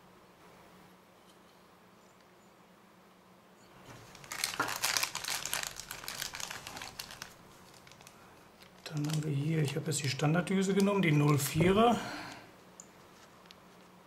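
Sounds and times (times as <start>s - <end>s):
plastic bag crinkling: 3.9s - 12.4s.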